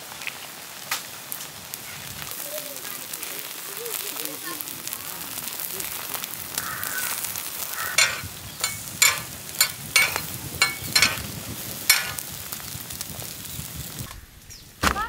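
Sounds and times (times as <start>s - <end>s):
eggs sizzling on a griddle: 0.0s - 14.6s
metal spatulas scraping a pan: 7.9s - 11.3s, 11.9s - 12.2s.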